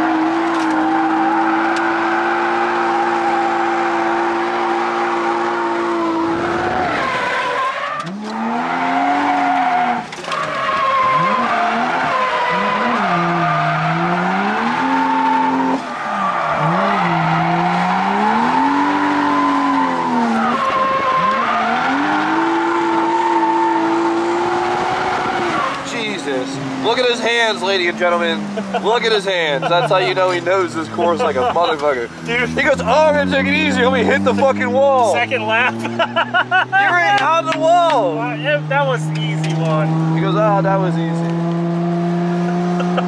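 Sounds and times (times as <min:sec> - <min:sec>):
car engine revving: 0:00.0 - 0:43.0
tyres squealing: 0:04.9 - 0:41.0.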